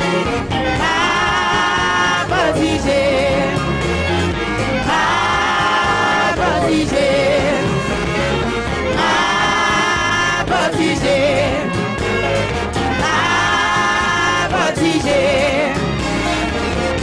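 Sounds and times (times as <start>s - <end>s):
brass band playing gospel: 0.0s - 17.0s
person singing: 1.4s - 3.7s, 5.8s - 7.9s.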